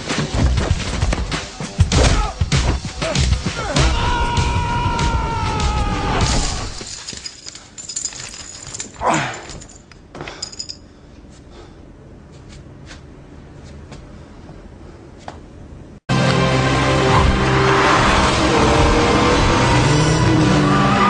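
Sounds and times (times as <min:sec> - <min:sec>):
clinks and clatters: 0:06.8 - 0:10.9
film soundtrack music: 0:16.1 - 0:21.0.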